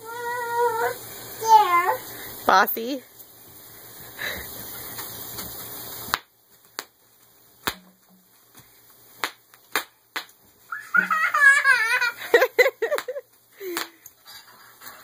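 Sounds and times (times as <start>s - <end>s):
bubble wrap popping: 4.9s - 8.5s, 9.1s - 11.6s
toddler squealing with laughter: 10.7s - 12.3s.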